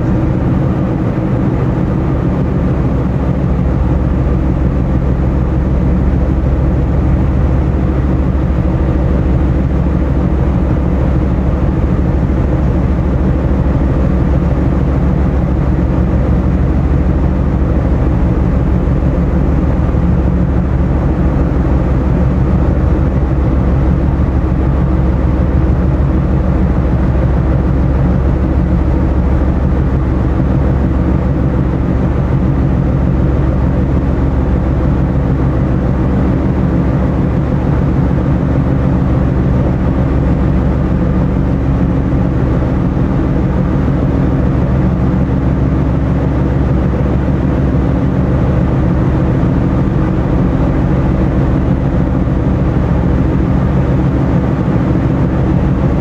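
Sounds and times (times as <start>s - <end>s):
ship diesel engines droning: 0.0s - 56.0s.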